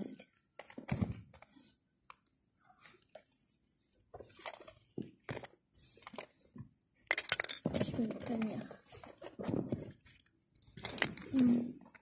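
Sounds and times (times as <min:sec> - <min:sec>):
fabric and plastic rustling: 0:00.4 - 0:12.0
small clicks and knocks: 0:07.0 - 0:08.6.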